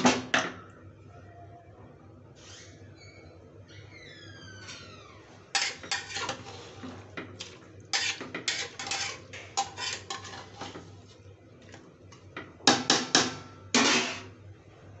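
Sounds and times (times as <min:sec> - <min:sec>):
metal spatula scraping a pot: 0:05.5 - 0:11.2, 0:13.7 - 0:14.4.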